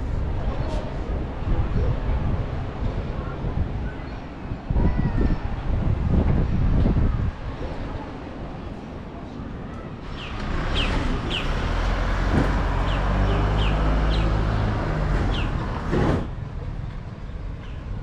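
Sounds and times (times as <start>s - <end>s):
small birds chirping: 10.0s - 11.7s, 12.7s - 15.6s.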